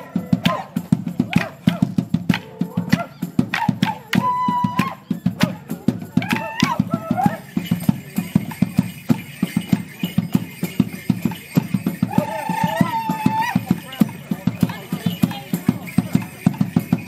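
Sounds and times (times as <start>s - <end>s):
boots stamping: 0.0s - 1.8s
steady drum beat: 0.0s - 17.0s.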